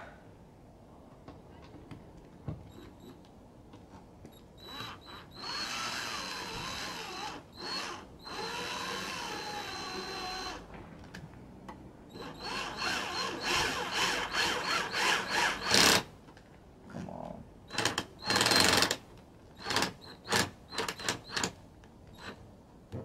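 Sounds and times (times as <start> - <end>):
cordless drill whirring: 4.6 - 10.6, 12.1 - 16.1, 17.7 - 19.0, 19.6 - 21.5.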